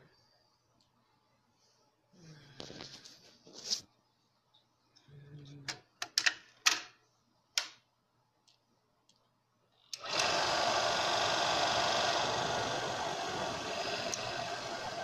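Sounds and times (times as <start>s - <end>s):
film projector motor running: 10.0s - 15.0s.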